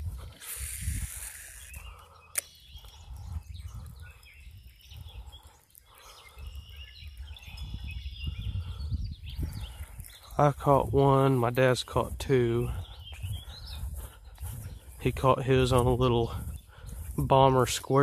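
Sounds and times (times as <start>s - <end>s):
wind buffeting microphone: 0.0s - 18.0s
faint bird calls: 0.4s - 10.4s
sharp click: 2.3s - 2.5s.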